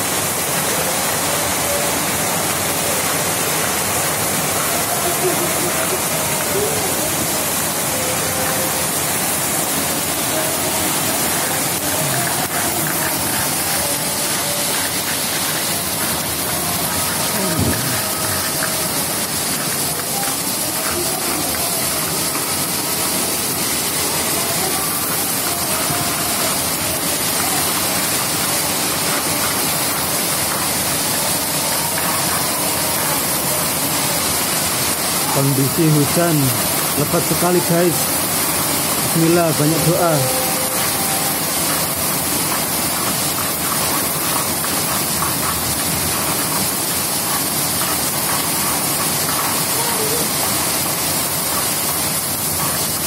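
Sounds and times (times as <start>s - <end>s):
torrential rain pouring: 0.0s - 53.0s.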